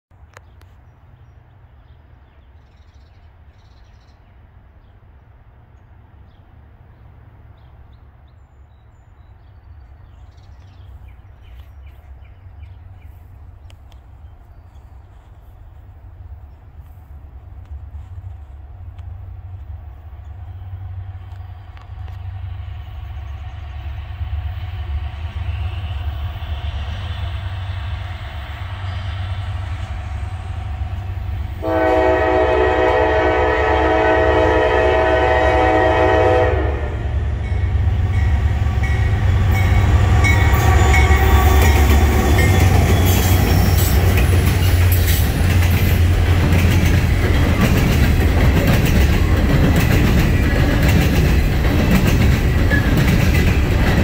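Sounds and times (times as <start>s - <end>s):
diesel locomotive rumble: 10.0s - 54.0s
high-pitched wheel-on-rail noise: 17.1s - 54.0s
locomotive horn blast: 31.6s - 44.0s
train wheels clattering: 37.4s - 54.0s.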